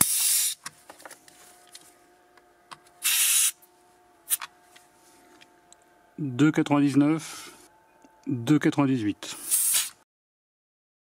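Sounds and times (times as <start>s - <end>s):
air hissing from tyre valve: 0.0s - 0.6s, 3.0s - 3.6s, 9.3s - 10.0s.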